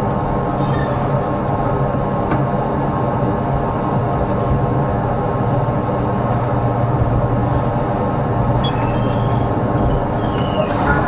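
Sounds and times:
tram low hum: 0:00.0 - 0:11.0
faint high squeals: 0:00.5 - 0:01.1, 0:08.6 - 0:11.0
wheels rolling on rails: 0:03.4 - 0:11.0.

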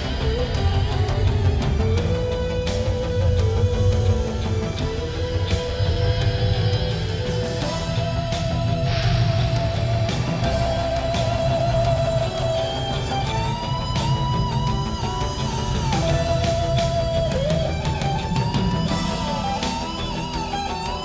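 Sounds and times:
drums: 0:00.0 - 0:21.0
electric guitar lead melody: 0:00.0 - 0:21.0.

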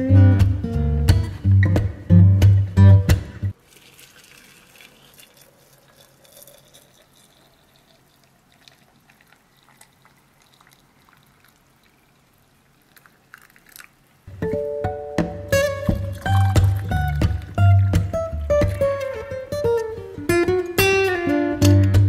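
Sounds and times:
water pouring into teapot: 0:03.5 - 0:14.3, 0:15.6 - 0:19.4.

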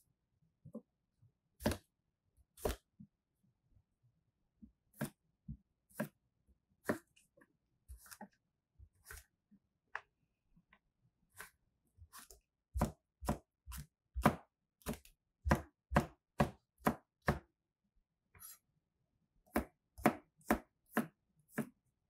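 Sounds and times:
knife chopping on cutting board: 0:01.6 - 0:01.9, 0:02.6 - 0:02.9, 0:04.9 - 0:05.2, 0:05.9 - 0:06.2, 0:06.8 - 0:07.2, 0:07.9 - 0:08.4, 0:09.0 - 0:09.3, 0:11.3 - 0:17.5, 0:19.5 - 0:21.8.

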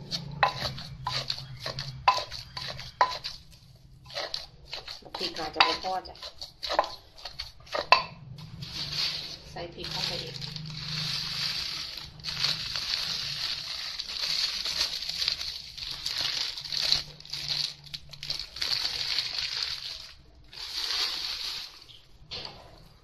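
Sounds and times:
plastic bag crinkling: 0:08.4 - 0:22.2.

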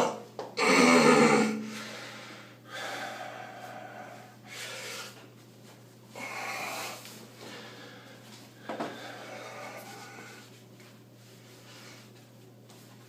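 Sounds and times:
man breathing heavily: 0:00.8 - 0:05.2, 0:06.1 - 0:10.6.

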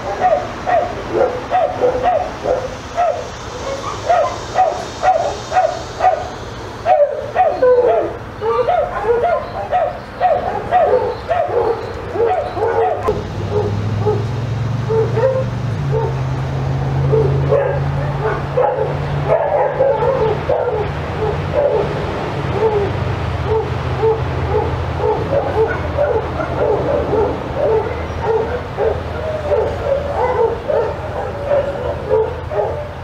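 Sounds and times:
dog yipping and whining: 0:00.1 - 0:06.3, 0:06.9 - 0:14.2, 0:14.9 - 0:16.1, 0:23.5 - 0:32.9.

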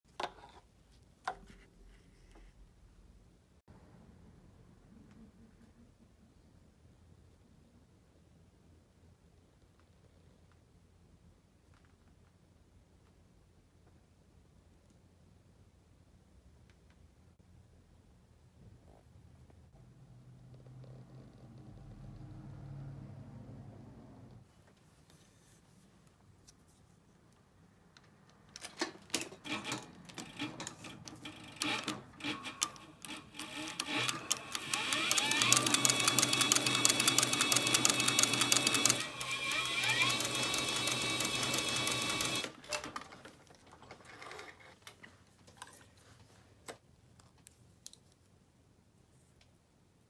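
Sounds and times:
sewing machine stitching: 0:29.2 - 0:43.1
sewing machine motor whine: 0:31.2 - 0:42.5.

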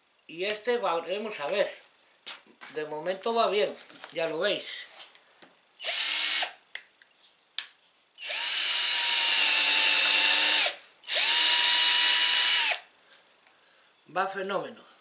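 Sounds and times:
cordless drill boring into wood: 0:05.8 - 0:06.6, 0:08.2 - 0:12.9.

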